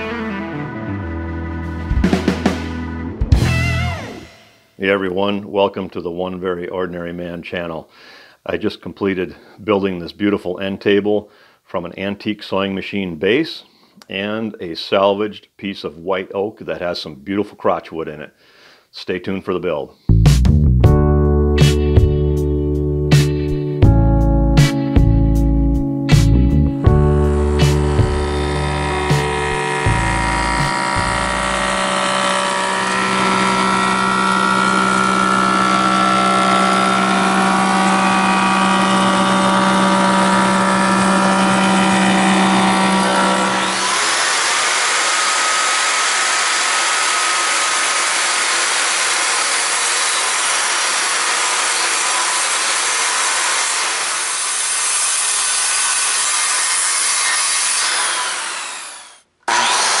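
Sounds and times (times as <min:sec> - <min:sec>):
circular saw cutting wood: 0:26.1 - 1:00.0
thickness planer humming: 0:26.1 - 1:00.0.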